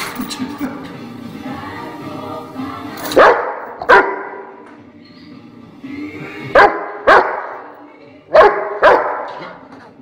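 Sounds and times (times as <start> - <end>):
dog barking: 3.2 - 4.5, 6.6 - 7.6, 8.3 - 9.6.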